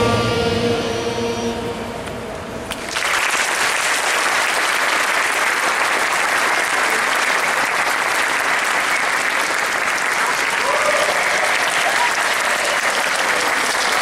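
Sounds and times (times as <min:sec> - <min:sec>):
children's choir singing: 0:00.0 - 0:02.3
audience applauding: 0:02.7 - 0:14.0.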